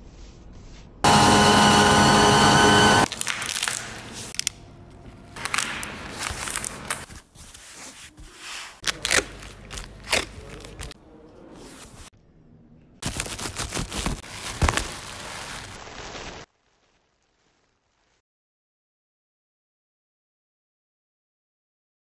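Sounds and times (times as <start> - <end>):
laser engraver whining: 1.0 - 3.1
packing tape pulled off roll: 3.0 - 7.9, 8.8 - 11.0, 13.0 - 18.2
packing material crinkling: 3.1 - 11.0, 13.0 - 18.2.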